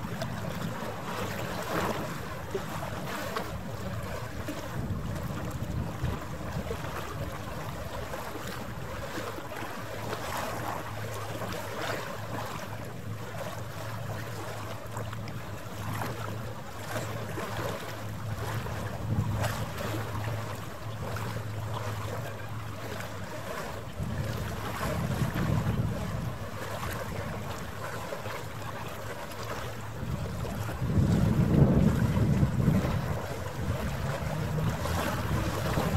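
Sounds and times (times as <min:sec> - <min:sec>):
boat engine droning: 0:00.0 - 0:35.9
water noise: 0:00.0 - 0:35.9
wind gusting on microphone: 0:18.6 - 0:20.0, 0:23.9 - 0:27.5, 0:30.0 - 0:35.9.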